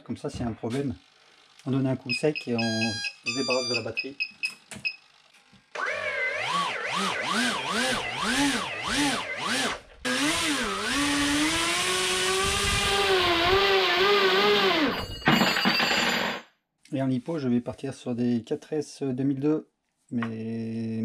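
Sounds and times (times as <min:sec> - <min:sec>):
small electric motor spinning propeller: 0:05.8 - 0:15.0.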